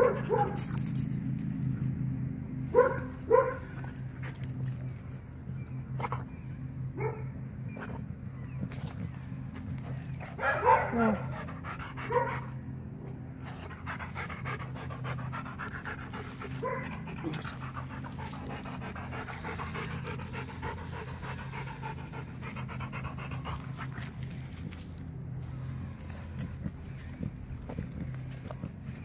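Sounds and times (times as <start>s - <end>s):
dog panting: 7.7s - 29.0s.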